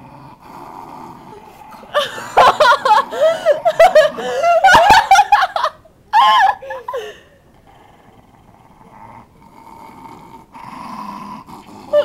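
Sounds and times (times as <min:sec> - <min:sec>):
people laughing loudly: 0:01.9 - 0:07.1.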